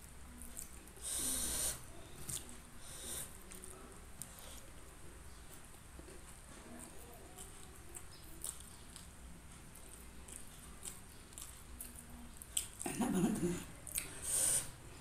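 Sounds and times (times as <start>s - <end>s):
chewing with clicks and crackles: 0.0s - 14.2s.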